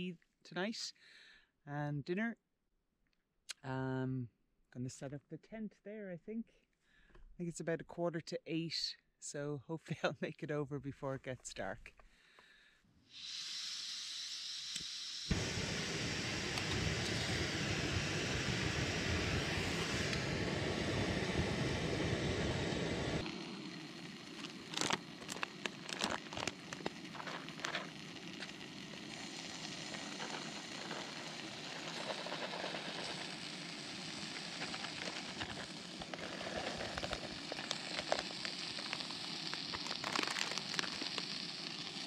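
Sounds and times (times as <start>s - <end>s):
gas stove hissing: 13.1s - 42.0s
food packet rustling: 23.6s - 42.0s.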